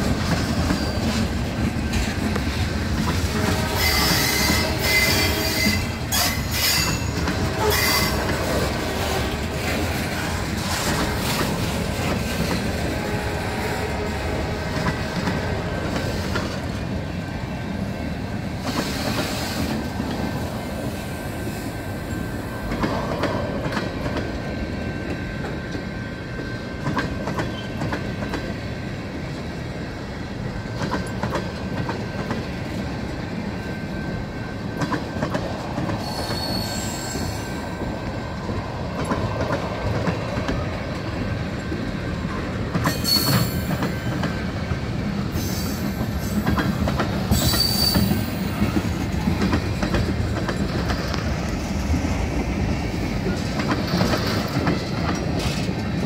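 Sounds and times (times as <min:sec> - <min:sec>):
train wheels rumbling on rails: 0:00.0 - 0:56.0
high wheel squeals: 0:36.0 - 0:37.7, 0:42.8 - 0:44.1, 0:47.3 - 0:48.7.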